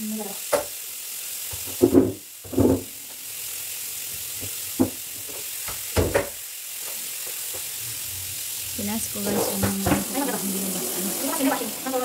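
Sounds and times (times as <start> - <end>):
steady hiss: 0.0 - 12.0
dull knocks on tiled floor: 5.7 - 6.4.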